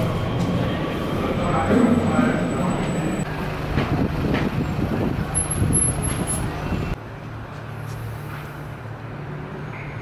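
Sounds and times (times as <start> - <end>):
street traffic: 0.0 - 10.0.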